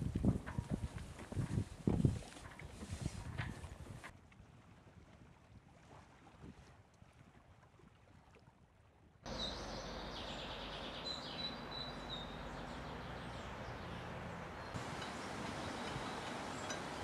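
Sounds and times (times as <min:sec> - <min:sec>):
outdoor background noise: 0:09.2 - 0:17.0
small birds chirping: 0:09.3 - 0:17.0.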